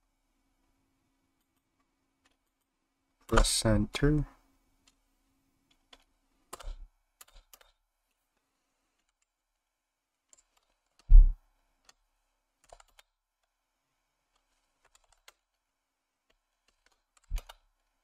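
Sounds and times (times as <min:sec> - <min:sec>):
loud thump: 0:11.1 - 0:11.4
keyboard key clicks: 0:16.7 - 0:17.6.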